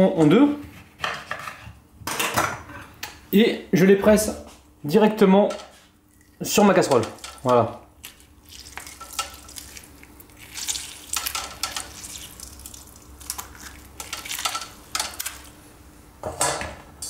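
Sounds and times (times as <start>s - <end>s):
juice squirting and dripping: 6.0s - 15.6s.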